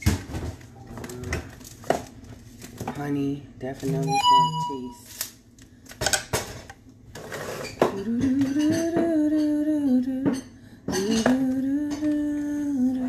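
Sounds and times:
kitchen dishes clinking: 7.6 - 12.2.

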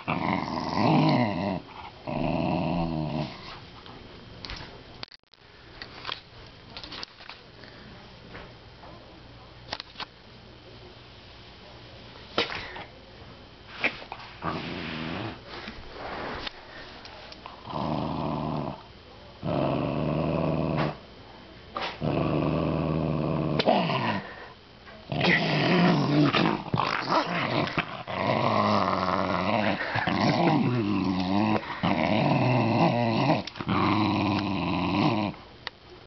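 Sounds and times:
small dog play-growling: 0.0 - 3.6, 13.8 - 15.7, 17.5 - 21.0, 21.8 - 24.4, 25.1 - 35.4.

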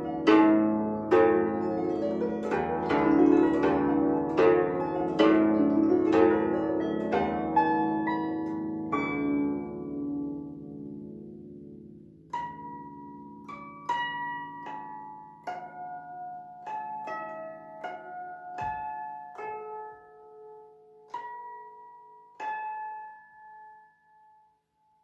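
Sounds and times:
zither plucked notes: 0.0 - 24.3.

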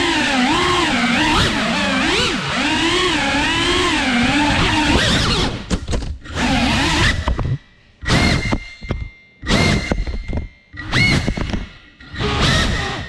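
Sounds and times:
quadcopter motors whining: 0.0 - 7.4, 10.7 - 13.0.

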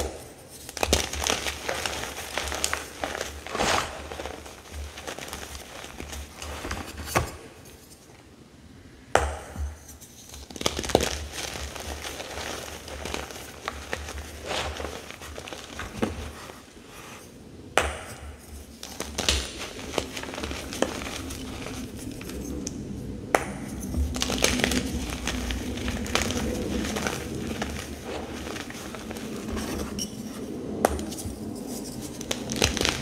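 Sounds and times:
sharp chalk cracks: 0.0 - 8.0, 9.2 - 16.7, 17.8 - 33.0
chalk crunching in hands: 10.3 - 17.3.

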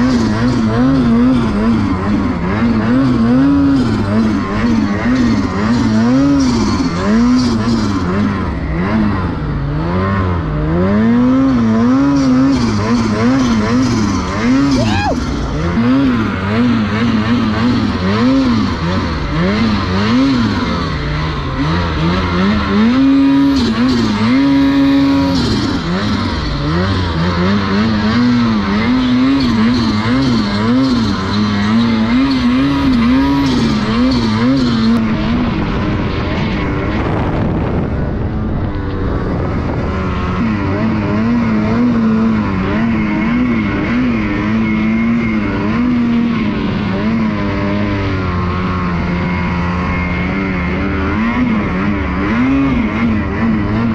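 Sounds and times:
snowmobile engine revving: 0.0 - 53.9.

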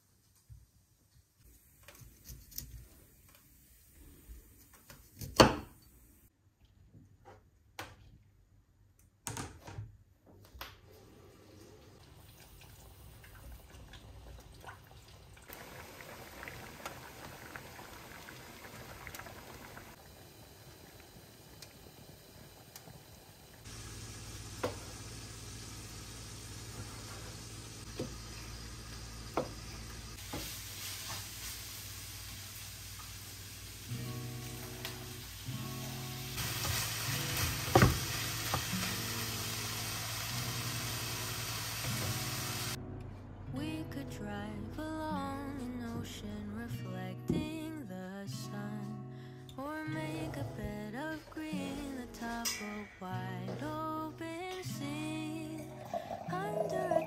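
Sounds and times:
chicken sizzling in a pan: 15.5 - 42.8
knock on cutting board: 37.7 - 38.0.

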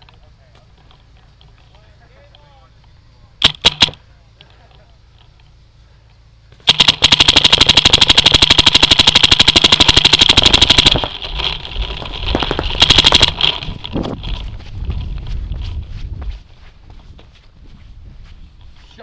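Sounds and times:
paintball marker firing: 3.4 - 4.0, 6.6 - 13.7.

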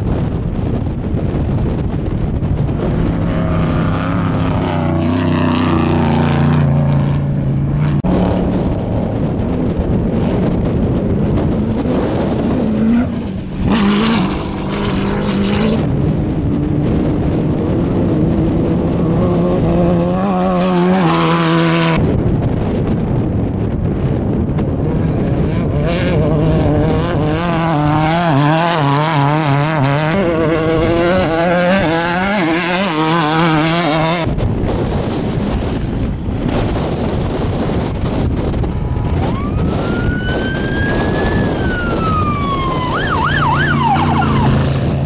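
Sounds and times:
off-road truck engines revving: 1.7 - 22.8, 24.0 - 45.0
loud rushing noise: 2.5 - 17.1.

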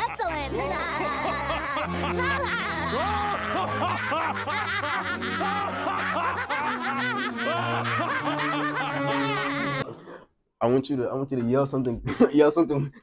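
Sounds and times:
cartoon characters laughing: 0.0 - 10.2.

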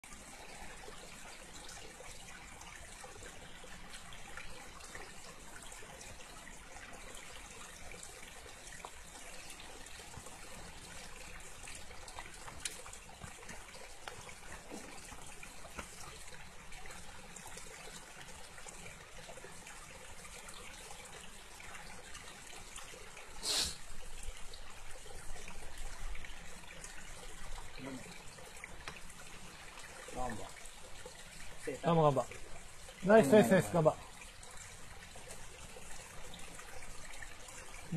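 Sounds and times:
river water running over rocks: 0.1 - 37.9
short sharp hiss: 23.4 - 23.8.

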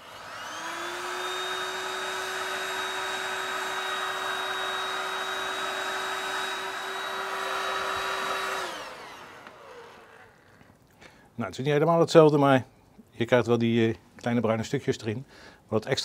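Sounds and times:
electric fire starter blowing: 0.0 - 10.6.

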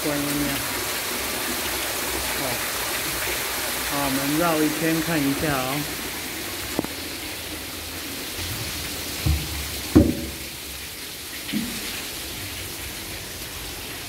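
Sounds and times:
dull thumps: 9.2 - 10.5.

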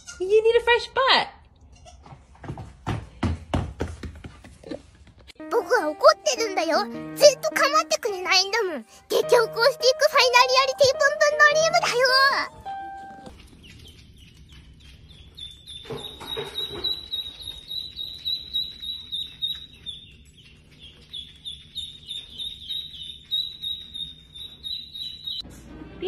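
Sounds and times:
duckling peeping: 9.6 - 25.4.

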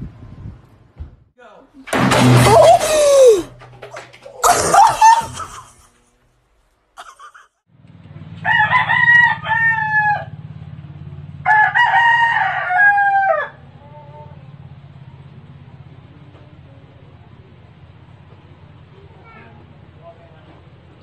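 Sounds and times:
rooster crowing: 8.4 - 10.4, 11.4 - 14.2.

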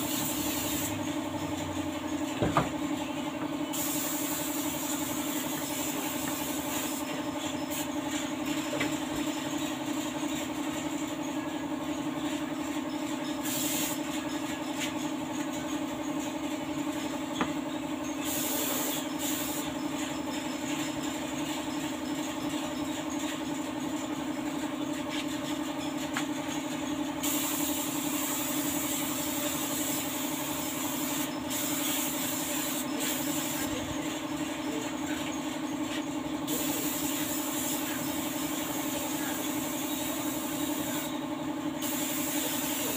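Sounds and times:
paint spray gun hissing: 0.0 - 0.9, 3.7 - 7.0, 13.4 - 14.0, 18.2 - 19.7, 27.2 - 33.7, 36.5 - 41.1, 41.8 - 42.9
steady machine hum: 0.0 - 42.9.

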